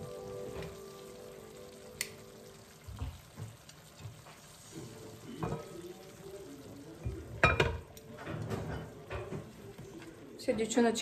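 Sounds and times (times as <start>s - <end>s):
tongs clicking and scraping in pan: 3.2s - 10.2s
glass lid clattering on pan: 7.4s - 9.5s.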